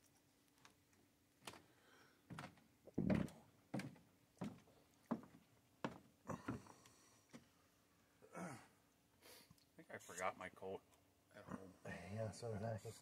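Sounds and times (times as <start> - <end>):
footsteps on wooden boards: 2.3 - 7.5.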